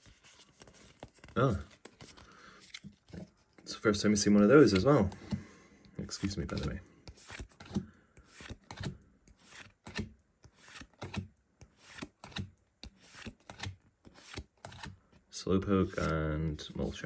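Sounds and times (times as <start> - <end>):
trading cards swishing and flicking: 6.1 - 14.9.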